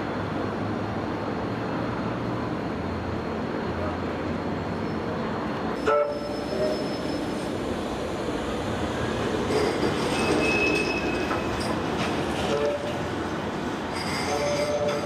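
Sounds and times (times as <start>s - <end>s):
tram wheels rumbling on track: 0.0s - 15.0s
high wheel squeal: 5.8s - 7.6s, 9.5s - 11.8s, 13.9s - 15.0s.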